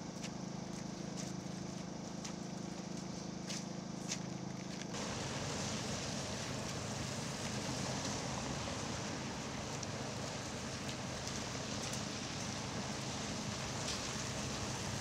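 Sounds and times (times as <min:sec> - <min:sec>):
generator engine hum: 0:00.0 - 0:15.0
outdoor hiss: 0:04.9 - 0:15.0.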